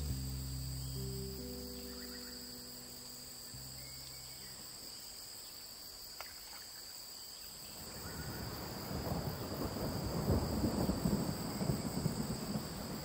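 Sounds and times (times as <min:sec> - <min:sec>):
background music: 0:00.0 - 0:04.6
insect chorus buzzing: 0:00.0 - 0:13.0.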